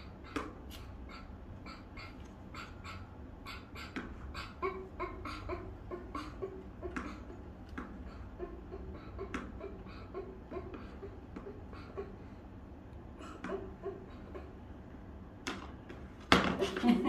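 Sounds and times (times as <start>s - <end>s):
child giggling: 3.6s - 12.3s, 13.2s - 14.6s, 16.6s - 17.0s.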